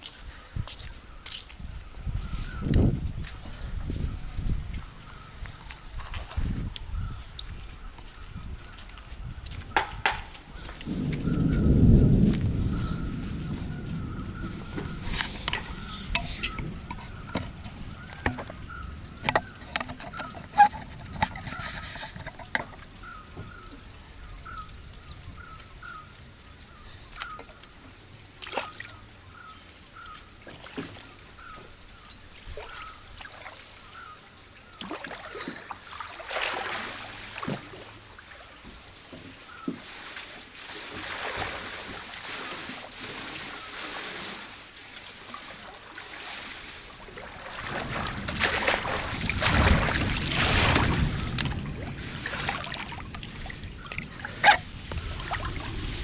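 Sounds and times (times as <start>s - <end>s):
water splashing from swimming: 29.9s - 56.0s.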